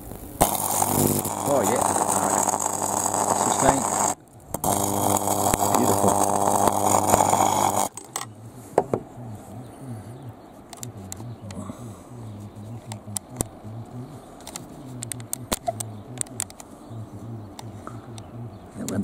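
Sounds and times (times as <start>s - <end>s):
electrical zapper buzz with crackle: 0.0s - 8.3s
faint snaps and ticks: 14.4s - 16.8s.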